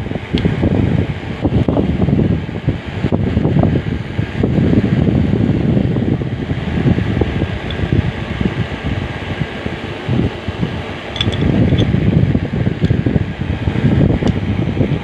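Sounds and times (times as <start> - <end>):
air buffeting microphone: 0.0 - 15.0
wrench clicking on valve: 11.1 - 11.9.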